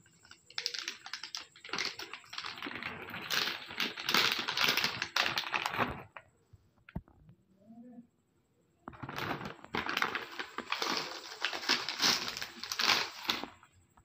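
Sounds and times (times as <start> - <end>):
snack packet crinkling: 0.0 - 6.2, 8.9 - 13.6.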